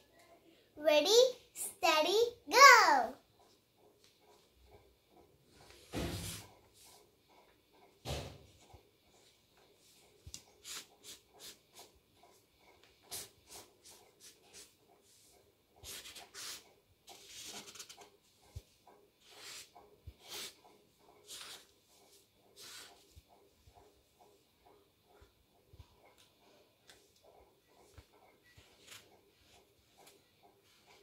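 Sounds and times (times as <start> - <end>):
marker strokes on paper: 9.8 - 18.1, 19.2 - 23.2, 27.8 - 31.0.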